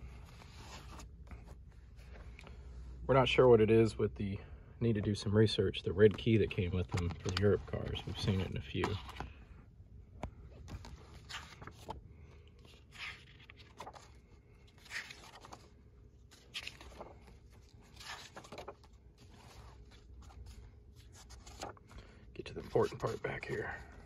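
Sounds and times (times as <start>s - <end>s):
pages turning: 0.2s - 2.3s, 6.0s - 9.4s, 10.2s - 24.0s
paper and plastic rustling: 6.0s - 9.3s, 10.5s - 12.0s, 12.6s - 24.0s.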